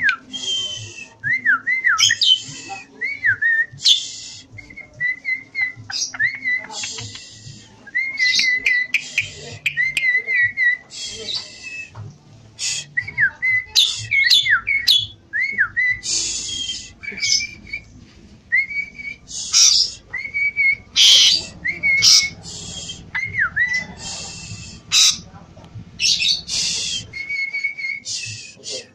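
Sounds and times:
starling whistling song: 0.0 - 25.3, 25.9 - 28.9
harsh raspy bird chatter: 3.8 - 4.7, 5.5 - 11.8, 12.6 - 15.2, 15.9 - 17.8, 18.7 - 25.3, 25.9 - 28.9.

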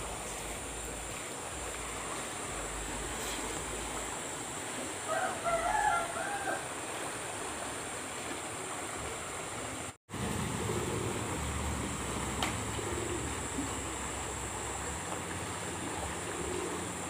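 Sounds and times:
flowing canal water: 0.0 - 17.0
rooster crowing: 5.0 - 6.8.

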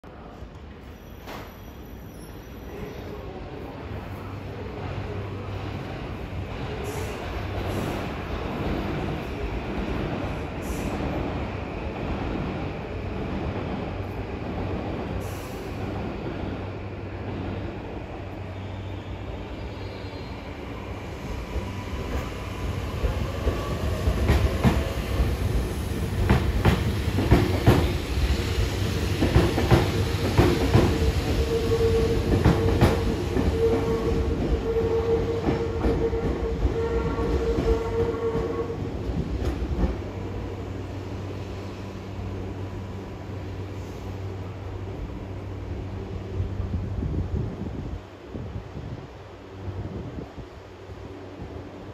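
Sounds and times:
train wheel squeal: 0.8 - 3.4, 18.5 - 22.3.

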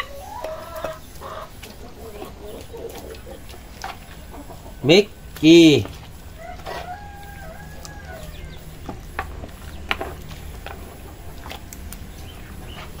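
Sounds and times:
steady low hum: 0.0 - 13.0
animal call: 5.7 - 8.8.

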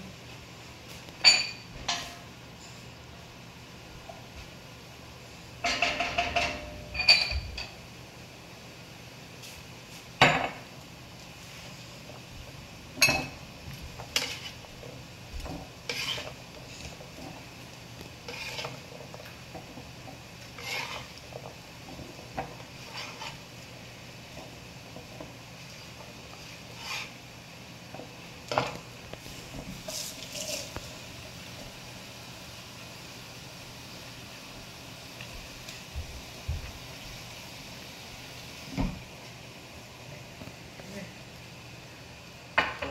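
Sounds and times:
cookware clattering: 1.2 - 2.2, 5.6 - 7.8
kitchenware clinking: 1.2 - 2.8, 5.6 - 7.8, 10.2 - 10.7, 13.0 - 13.4
hissing scrapes: 15.8 - 17.4, 18.2 - 19.1, 20.4 - 21.2, 22.7 - 23.5, 26.4 - 27.2, 29.2 - 31.1.

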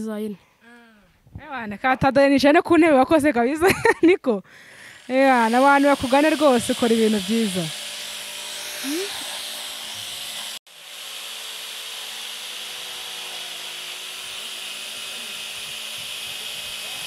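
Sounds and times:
jigsaw cutting wood: 4.6 - 17.0.

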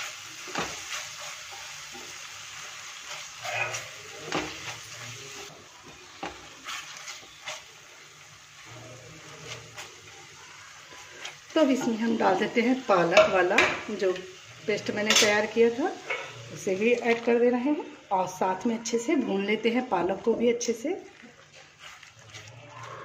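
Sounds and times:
spatula scraping pan: 0.0 - 8.0, 15.0 - 17.2, 21.0 - 23.0
masala sizzling in oil: 0.0 - 23.0.

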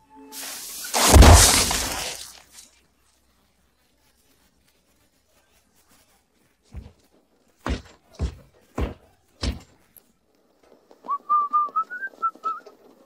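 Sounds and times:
cartoon thuds: 0.9 - 2.2.

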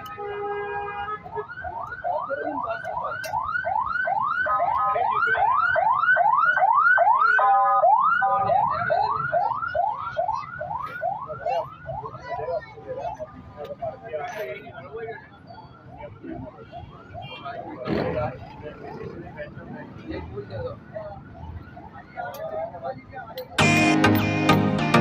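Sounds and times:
car alarm whooping: 1.2 - 12.0.

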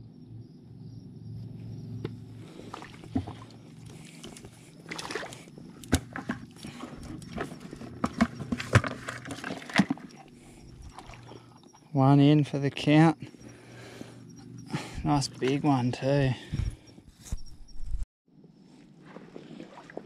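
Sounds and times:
footsteps splashing through water: 2.6 - 10.1, 10.8 - 11.4, 19.0 - 20.0.

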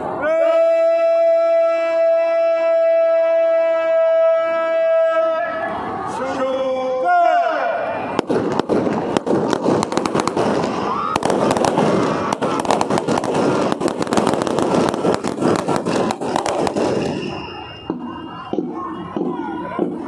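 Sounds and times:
rifles firing: 8.2 - 17.3.

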